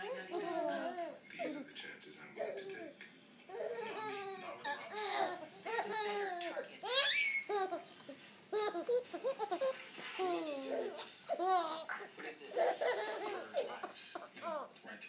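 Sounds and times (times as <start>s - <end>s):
babies giggling and babbling: 0.0s - 2.9s, 3.5s - 14.8s
baby squealing: 3.5s - 7.9s.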